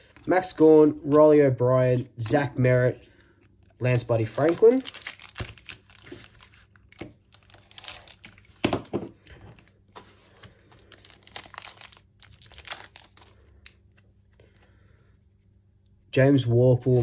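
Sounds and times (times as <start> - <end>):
wrapper crinkling and tearing: 3.9 - 8.9, 10.4 - 14.0.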